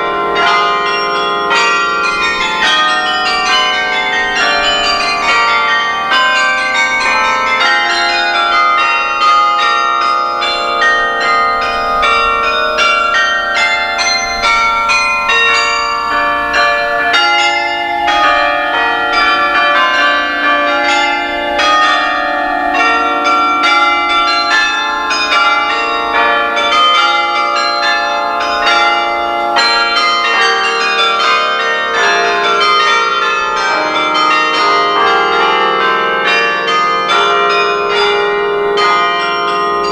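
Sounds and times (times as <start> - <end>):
carillon bells playing a melody: 0.0 - 39.9.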